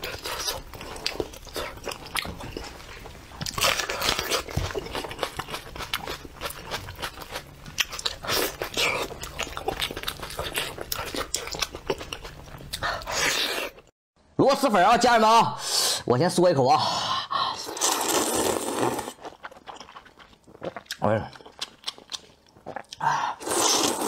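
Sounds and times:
chewing and wet smacking: 0.0 - 13.2, 19.2 - 23.0.

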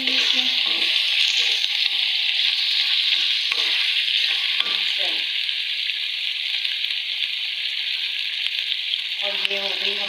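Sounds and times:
wooden spoon stirring: 0.0 - 5.1
food sizzling in a wok: 0.0 - 10.0.

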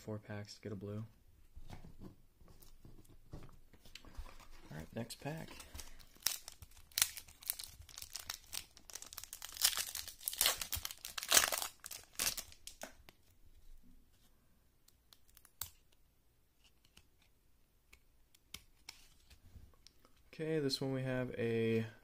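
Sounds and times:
foil wrapper tearing and crinkling: 5.7 - 12.8.

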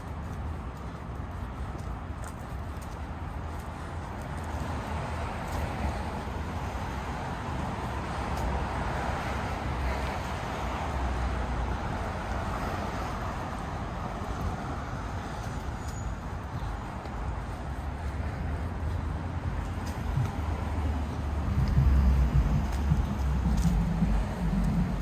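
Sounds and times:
car passing: 16.6 - 25.0.

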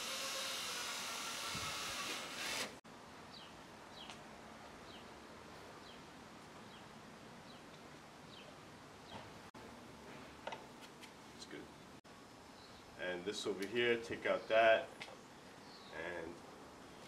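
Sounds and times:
cordless drill boring plastic: 0.0 - 2.8
faint background noise: 2.0 - 17.0
bird chirping: 6.6 - 9.3, 12.5 - 13.0, 14.3 - 16.1.

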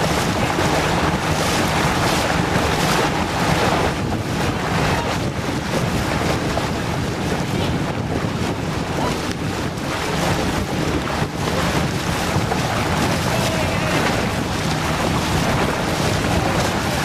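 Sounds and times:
water rushing past boat hull: 0.0 - 17.0
wind buffeting microphone: 0.0 - 17.0.

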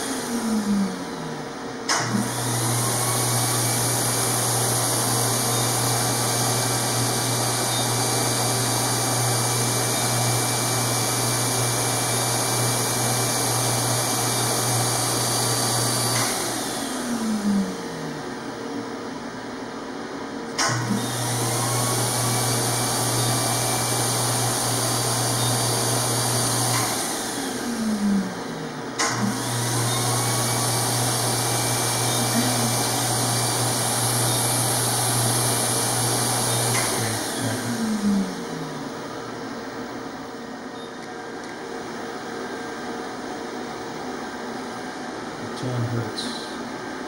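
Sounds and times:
vacuum motor running: 0.0 - 47.0
motor switch click: 20.6 - 20.8, 29.0 - 29.3.

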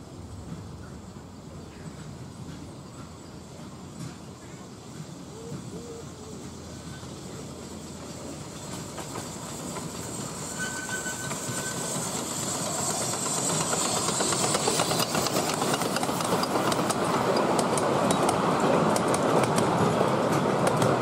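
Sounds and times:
steam locomotive hissing: 0.0 - 21.0
wheels clicking over rail joints: 7.6 - 21.0.

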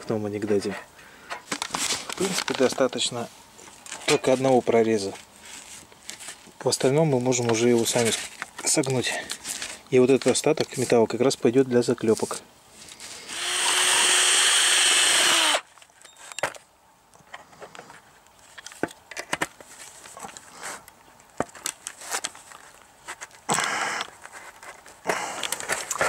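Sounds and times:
cordless drill boring through metal: 13.3 - 15.6.

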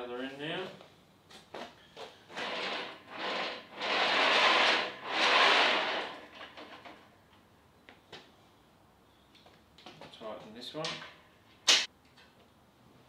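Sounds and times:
gantry rolling on steel rails: 2.3 - 7.1.

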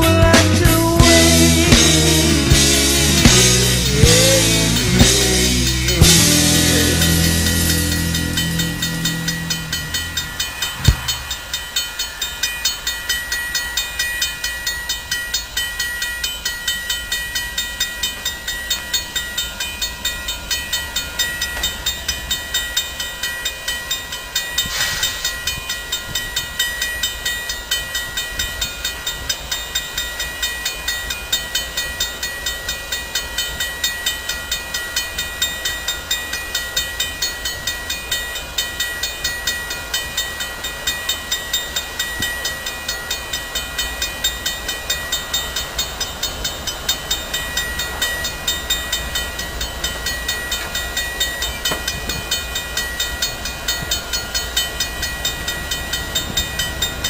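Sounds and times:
diesel locomotive engine rumble: 0.0 - 13.1, 30.2 - 57.0
regular ticking: 0.8 - 24.4
steady high whine: 1.0 - 14.1
brief hiss: 24.7 - 25.4.

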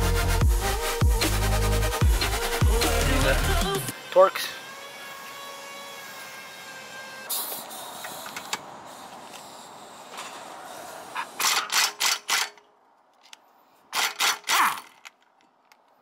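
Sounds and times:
pneumatic tool bursts: 3.9 - 12.6, 13.9 - 15.0.

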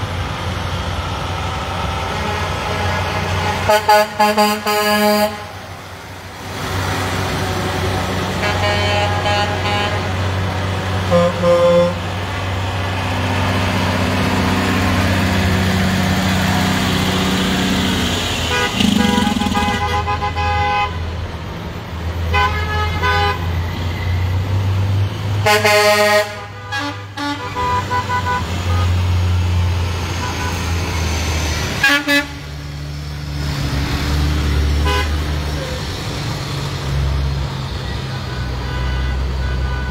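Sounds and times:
truck engines rumbling: 0.0 - 39.9
truck horn blasts: 2.0 - 5.6, 8.3 - 10.3, 11.0 - 12.1, 18.4 - 21.1, 22.3 - 23.4, 25.4 - 29.0, 31.8 - 32.4, 34.8 - 35.2, 38.4 - 39.9.

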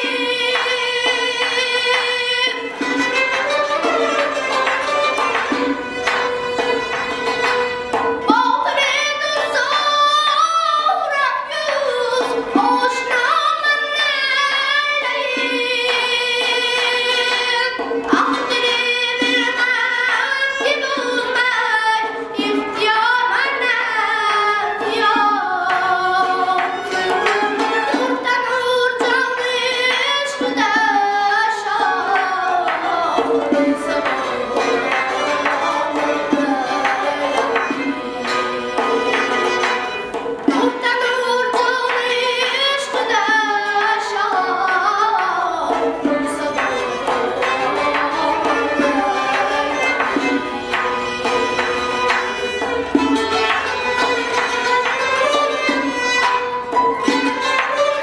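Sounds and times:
long-necked lutes: 0.0 - 58.0
frame drum: 2.5 - 8.8, 30.4 - 41.8, 45.6 - 58.0.

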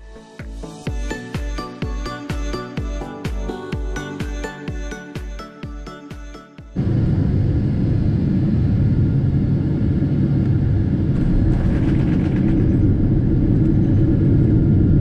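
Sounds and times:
music: 0.0 - 7.5
airplane rumble on runway: 6.8 - 15.0.

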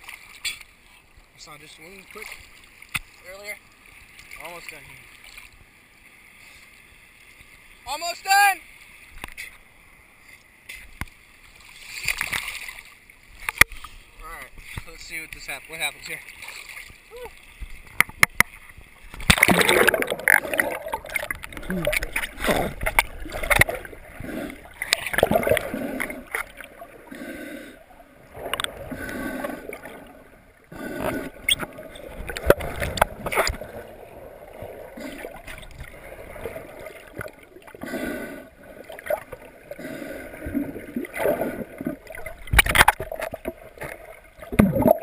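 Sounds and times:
water sloshing underwater: 0.0 - 8.0, 8.7 - 45.0
sharp underwater knocks: 17.6 - 23.8, 42.2 - 45.0.

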